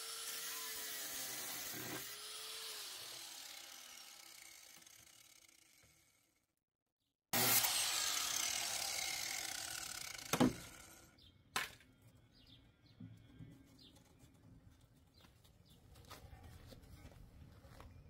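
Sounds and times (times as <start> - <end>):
power saw cutting sheet metal: 0.0 - 6.1, 7.4 - 11.1.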